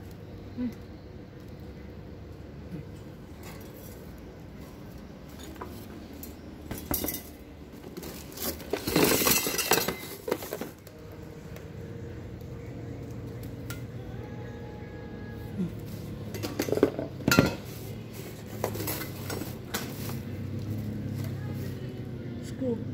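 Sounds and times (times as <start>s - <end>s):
steady low hum: 0.0s - 22.9s
metal and plastic parts clinking: 8.0s - 10.8s.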